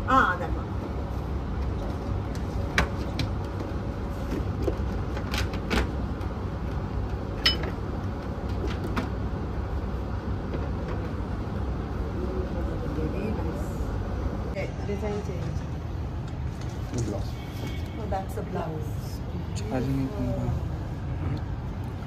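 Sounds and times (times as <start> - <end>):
low room rumble: 0.0 - 22.0.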